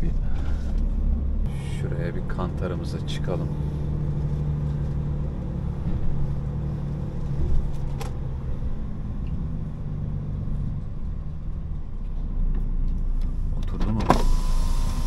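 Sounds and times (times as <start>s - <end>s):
truck diesel engine idling: 0.0s - 4.8s.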